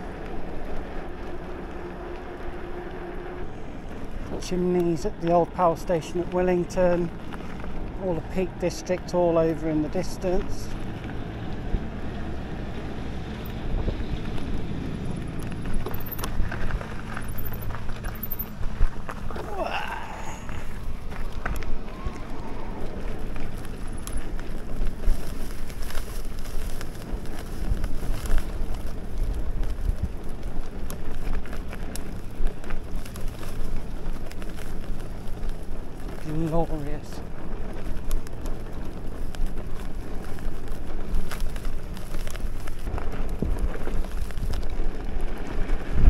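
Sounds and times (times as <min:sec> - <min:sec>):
bike tyres rolling on track: 0:00.0 - 0:46.0
wind buffeting microphone: 0:00.0 - 0:46.0
wind on microphone: 0:37.2 - 0:46.0.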